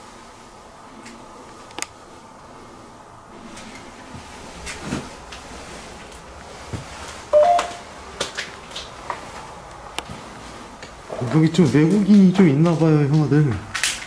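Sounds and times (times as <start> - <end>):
short electronic beep: 7.4 - 7.8.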